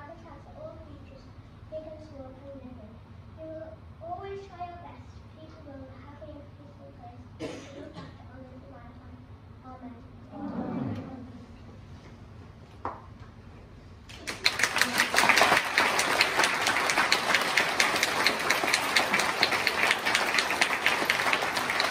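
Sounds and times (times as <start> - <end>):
children applauding: 14.1 - 21.9.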